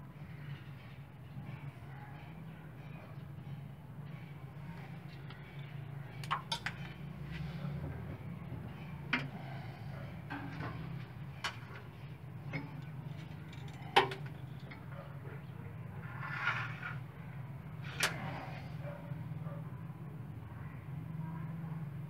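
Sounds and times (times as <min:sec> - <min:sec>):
steady low hum: 0:00.0 - 0:22.0
clicks and knocks of hands working: 0:12.5 - 0:14.9.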